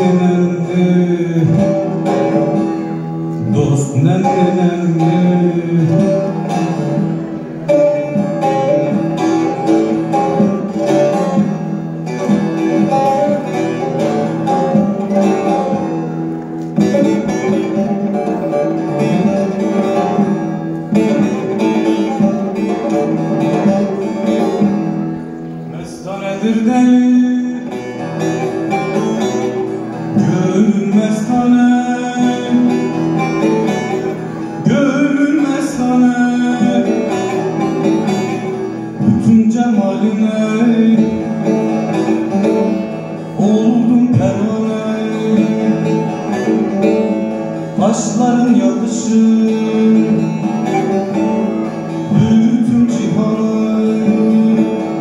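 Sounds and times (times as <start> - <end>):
man singing: 0.0 - 16.0, 16.8 - 24.6, 25.7 - 55.0
plucked long-necked lute: 0.0 - 55.0.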